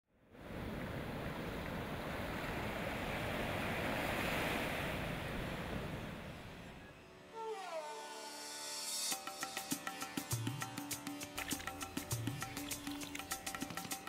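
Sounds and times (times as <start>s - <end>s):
ocean surf breaking on beach: 0.3s - 6.8s.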